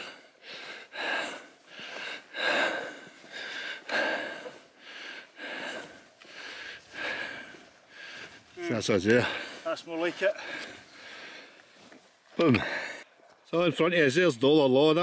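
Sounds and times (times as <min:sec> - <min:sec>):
person breathing hard: 0:00.0 - 0:08.6, 0:09.2 - 0:11.9, 0:12.6 - 0:13.1.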